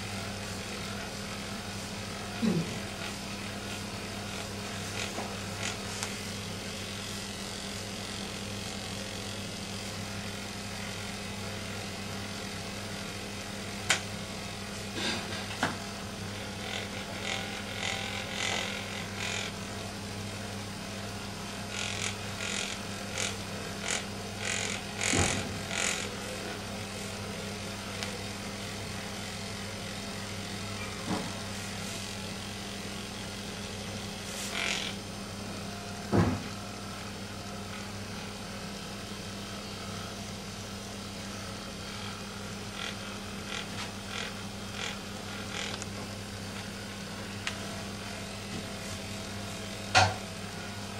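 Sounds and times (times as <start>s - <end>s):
massager humming: 0.0s - 50.9s.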